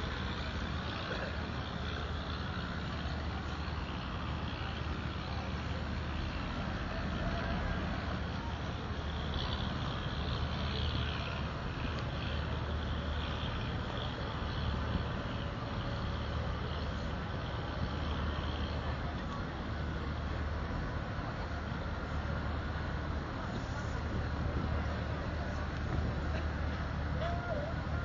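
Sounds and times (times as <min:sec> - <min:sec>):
boat engine droning: 0:00.0 - 0:28.0
crowd talking faintly: 0:00.0 - 0:28.0.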